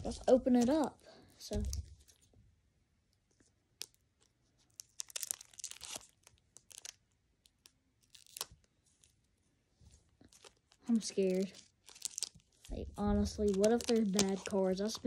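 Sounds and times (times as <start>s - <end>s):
foil wrapper tearing and crinkling: 0.0s - 0.9s, 3.8s - 9.1s, 10.2s - 15.0s.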